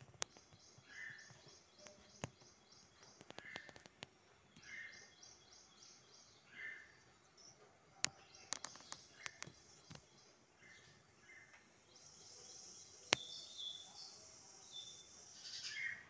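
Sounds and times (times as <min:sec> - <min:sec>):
sharp clicks: 0:00.0 - 0:04.7, 0:08.0 - 0:10.2, 0:11.5 - 0:13.6
bird calls: 0:00.0 - 0:16.0.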